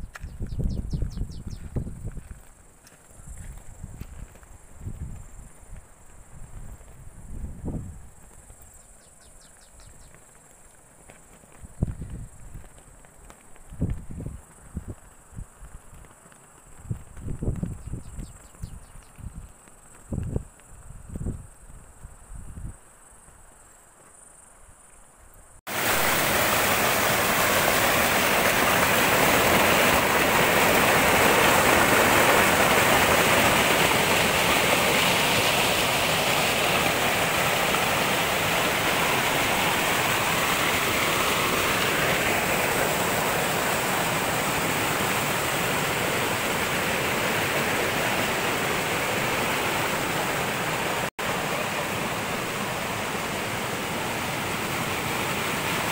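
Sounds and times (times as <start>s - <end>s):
stream rushing over rocks: 25.7s - 55.9s.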